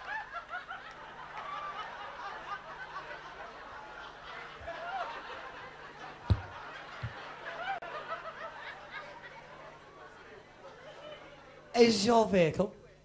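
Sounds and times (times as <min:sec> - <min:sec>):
audience laughing: 0:00.0 - 0:09.8.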